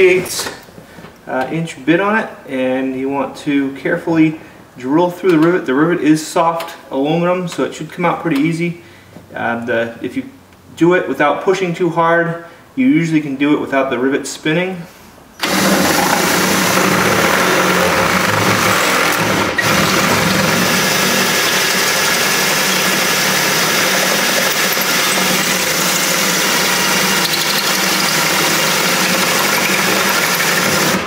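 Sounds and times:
cordless drill boring through metal: 0:15.4 - 0:31.0.

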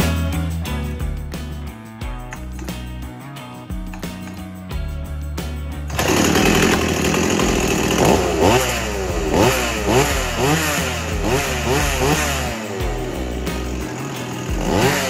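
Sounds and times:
chainsaw engine revving: 0:05.8 - 0:15.0.

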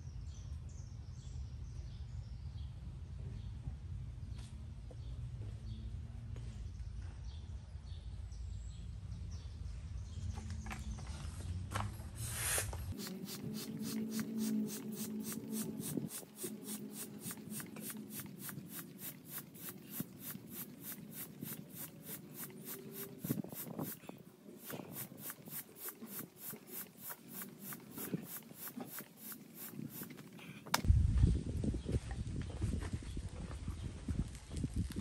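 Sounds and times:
hand air pump hissing: 0:12.2 - 0:30.8
wind rumble on microphone: 0:30.8 - 0:35.0.

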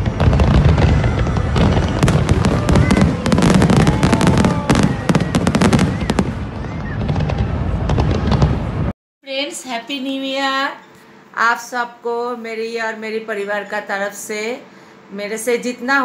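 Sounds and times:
fireworks crackling and banging: 0:00.0 - 0:08.9.

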